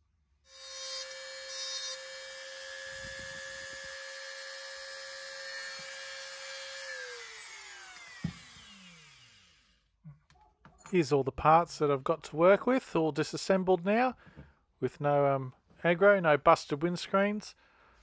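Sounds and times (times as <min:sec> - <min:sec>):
rotary tool whining: 0:00.5 - 0:09.8.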